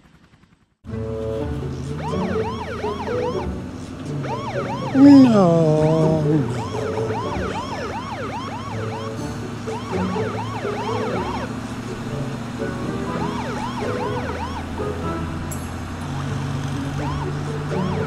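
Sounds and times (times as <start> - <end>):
low background music: 0.9 - 18.0
cartoon police siren whoops: 2.0 - 3.5, 4.2 - 11.5, 13.1 - 14.9, 17.0 - 18.0.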